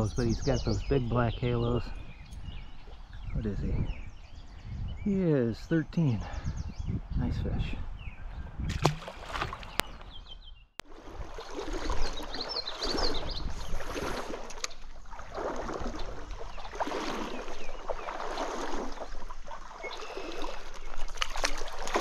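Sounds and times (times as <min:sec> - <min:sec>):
stream water splashing: 0:08.7 - 0:10.2, 0:10.8 - 0:22.0.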